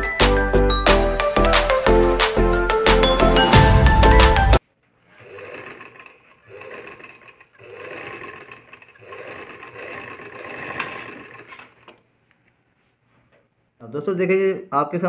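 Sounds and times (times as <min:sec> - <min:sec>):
sewing machine stitching: 0:05.0 - 0:12.0.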